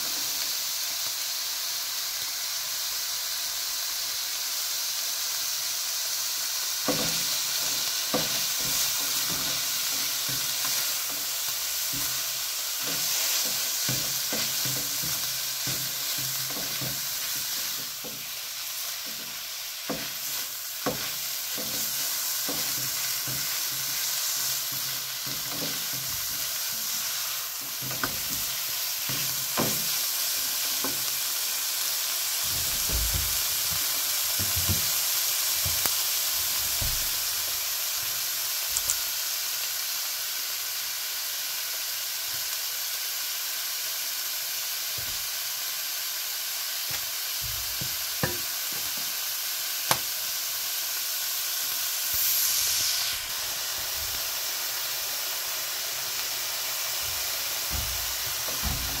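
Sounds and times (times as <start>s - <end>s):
food sizzling in a pan: 0.0s - 59.0s
utensil knocking against pan: 6.9s - 11.3s, 12.8s - 18.3s, 19.0s - 24.0s, 24.7s - 27.0s, 27.6s - 30.0s, 47.4s - 49.1s.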